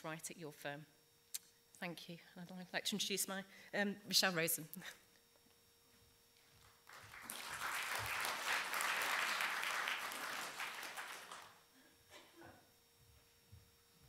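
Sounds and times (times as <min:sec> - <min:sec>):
audience applauding: 0:06.8 - 0:11.6.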